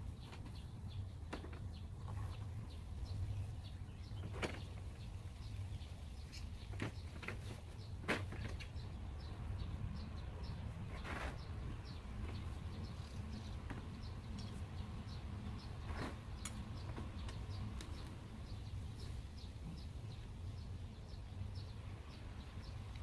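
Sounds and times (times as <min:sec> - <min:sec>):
bird chirping: 0:00.0 - 0:23.0.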